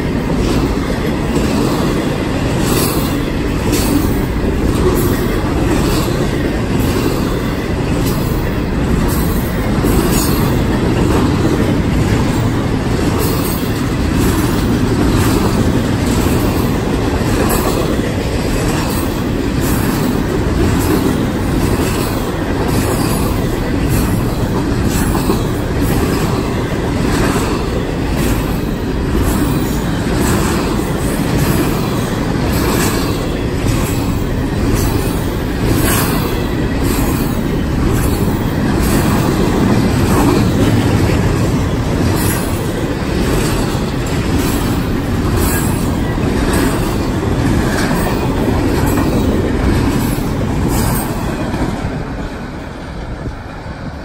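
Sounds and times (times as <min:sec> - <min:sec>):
wheels clicking over rail joints: 0:00.0 - 0:52.6
train wheels rumbling on rail: 0:00.0 - 0:54.0.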